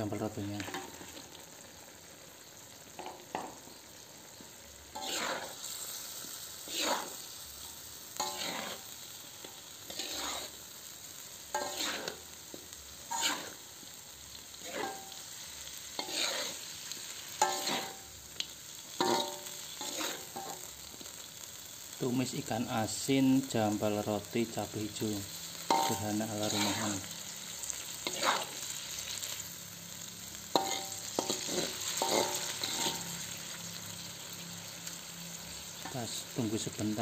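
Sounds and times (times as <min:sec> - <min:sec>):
pan sizzling: 0:00.0 - 0:37.0
metal spatula scraping a wok: 0:04.8 - 0:13.8, 0:14.5 - 0:20.7, 0:25.5 - 0:29.5, 0:30.4 - 0:34.2.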